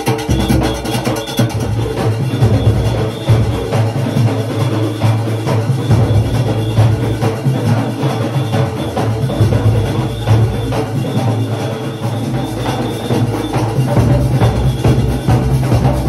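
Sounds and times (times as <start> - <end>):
drums beating fast rhythm: 0.0 - 16.0
heavy low drum boom: 12.1 - 16.0.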